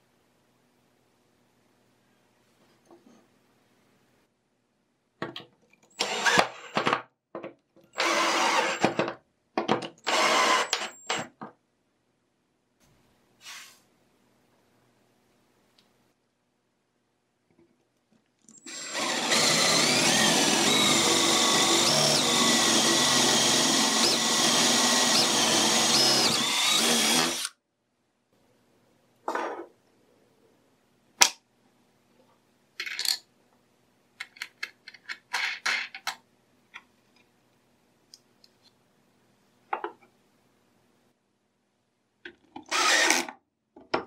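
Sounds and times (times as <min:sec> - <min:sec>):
handheld power tool running: 0:08.0 - 0:08.9, 0:10.1 - 0:11.1, 0:18.7 - 0:27.5, 0:42.7 - 0:43.3.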